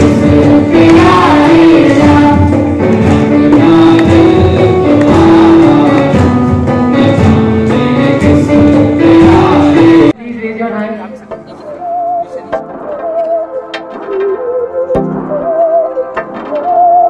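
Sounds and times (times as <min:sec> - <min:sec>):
conga drums: 0:00.0 - 0:10.1, 0:14.9 - 0:17.0
keyboard: 0:00.0 - 0:17.0.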